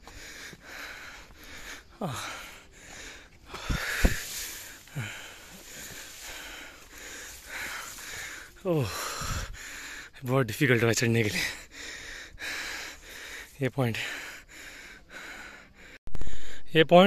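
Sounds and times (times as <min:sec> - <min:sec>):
person breathing hard: 0:00.0 - 0:10.2, 0:11.2 - 0:16.7
short thumps: 0:03.6 - 0:04.2.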